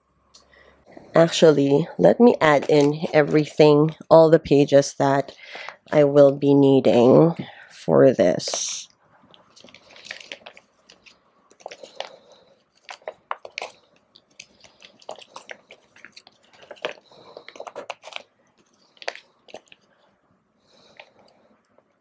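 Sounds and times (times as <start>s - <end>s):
plastic pages rustling and crinkling: 2.2s - 4.0s, 9.2s - 20.1s
small clicks and crackles: 9.2s - 20.0s.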